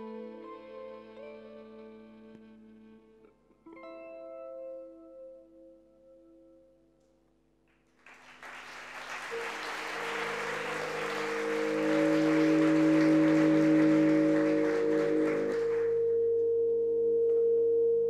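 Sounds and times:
audience applause: 8.0s - 16.0s
held music note: 9.3s - 16.4s
steady ringing tone: 9.5s - 16.9s.

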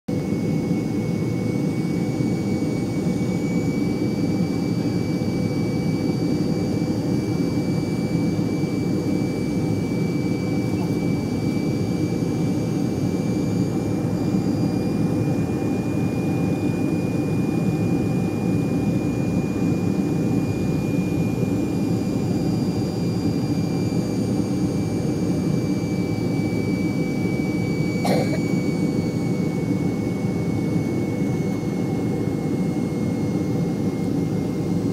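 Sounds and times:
airliner engine roar: 0.1s - 34.9s.

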